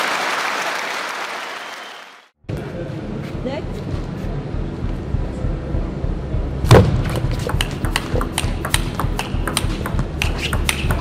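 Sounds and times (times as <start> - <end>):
low hall hum: 2.4 - 11.0
table tennis ball clicks: 7.5 - 11.0.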